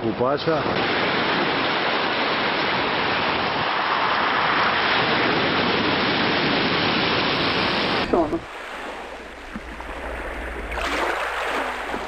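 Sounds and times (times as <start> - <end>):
surf washing onto pebbles: 0.5 - 12.0.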